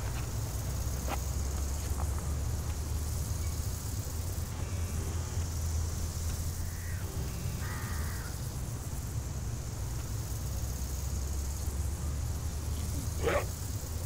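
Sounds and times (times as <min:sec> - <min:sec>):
crow cawing: 0:06.6 - 0:08.4.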